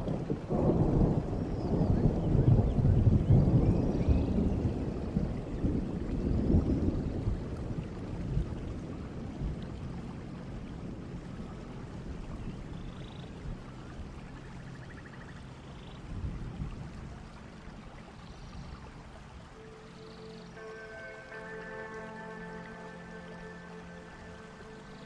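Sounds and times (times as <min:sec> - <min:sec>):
low roll of thunder: 0:00.0 - 0:25.0
steady rain falling: 0:00.0 - 0:25.0
faint high chirps: 0:19.6 - 0:25.0.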